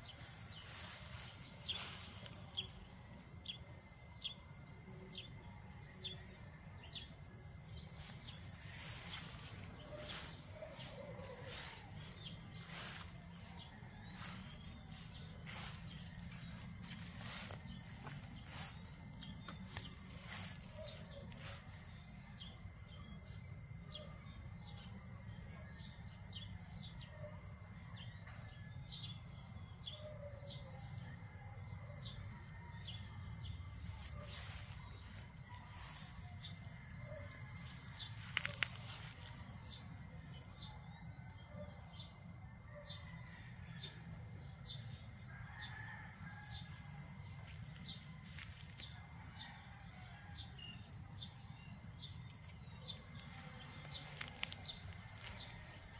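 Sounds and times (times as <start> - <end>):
small birds chirping: 6.8 - 23.4.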